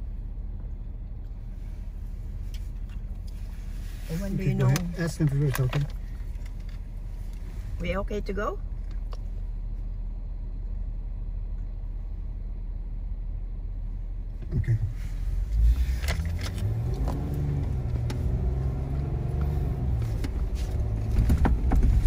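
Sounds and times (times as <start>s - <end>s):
car engine idling and revving: 0.0s - 22.0s
vehicle knocks: 20.2s - 22.0s.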